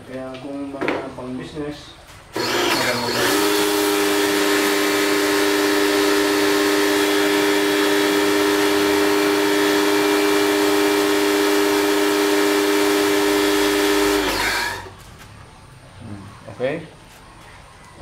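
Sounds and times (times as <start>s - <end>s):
pressure washer motor humming: 2.3s - 15.0s.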